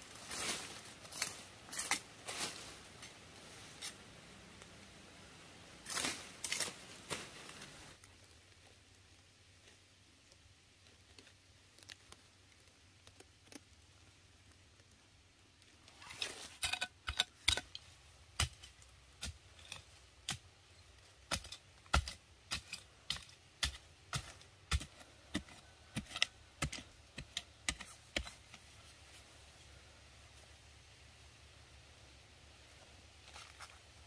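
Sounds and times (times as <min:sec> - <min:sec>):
sharp irregular clicks and snaps: 0:10.2 - 0:16.0.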